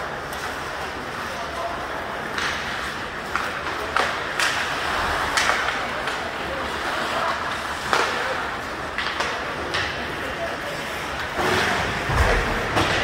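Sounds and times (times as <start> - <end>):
crowd voices: 0.0 - 13.0
hockey stick clacks: 2.2 - 10.3.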